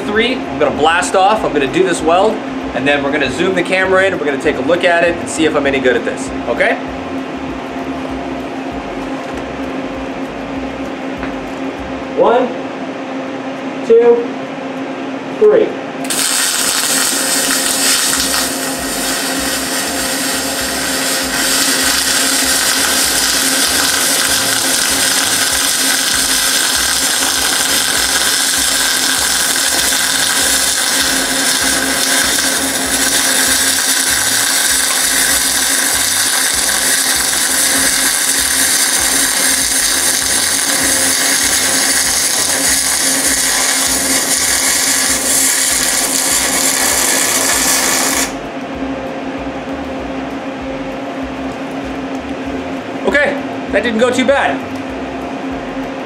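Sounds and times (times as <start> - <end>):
low hum: 0.0 - 56.0
welding arc burning: 16.0 - 48.7.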